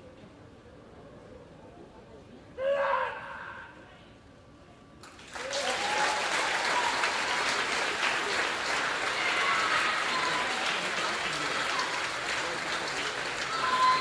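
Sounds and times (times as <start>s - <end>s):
crowd applauding: 5.0s - 14.0s
people calling out: 8.3s - 14.0s.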